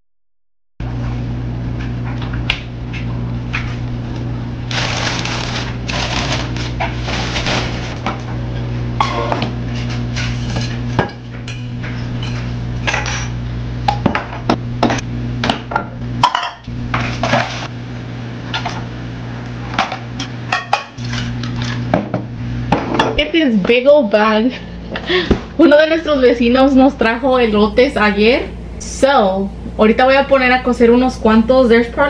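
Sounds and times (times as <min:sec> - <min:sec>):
steady low hum: 0:00.8 - 0:32.0
dishes clinking in sink: 0:16.2 - 0:17.5.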